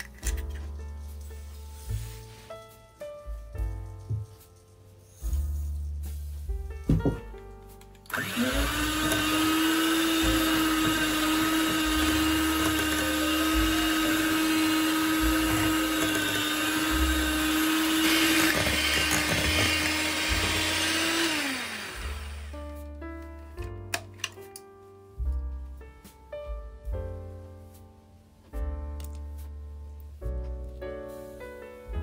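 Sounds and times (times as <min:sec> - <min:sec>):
electric hand mixer whisking: 0:08.1 - 0:22.6
mixer motor winding down whine: 0:08.1 - 0:22.6.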